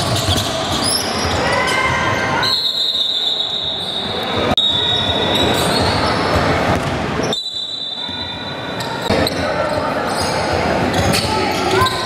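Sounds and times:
basketball bouncing on court: 0.0 - 2.0
players and spectators noise: 0.0 - 12.0.

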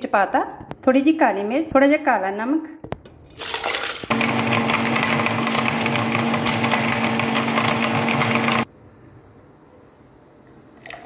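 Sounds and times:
electric blender running: 4.1 - 8.7.

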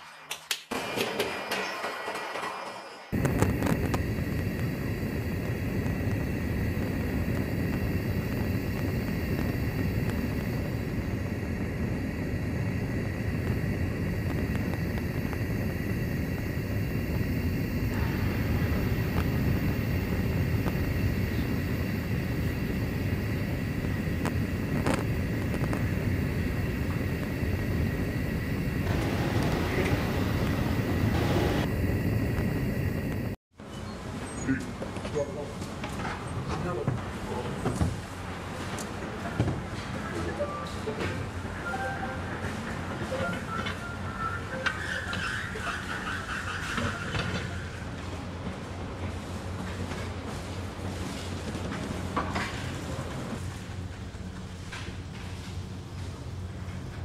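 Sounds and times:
high whine: 3.1 - 33.4
machine low roar: 3.2 - 33.3.

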